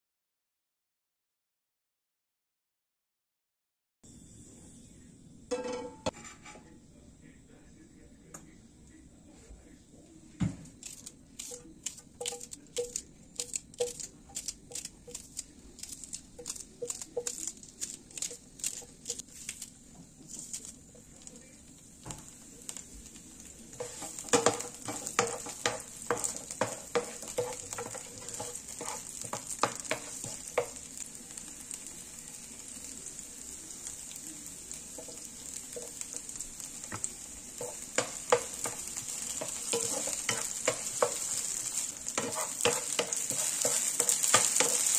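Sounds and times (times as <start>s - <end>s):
utensil scraping a pan: 5.6s - 6.6s, 23.7s - 30.8s, 36.9s - 44.9s
food sizzling in a pan: 10.6s - 44.9s.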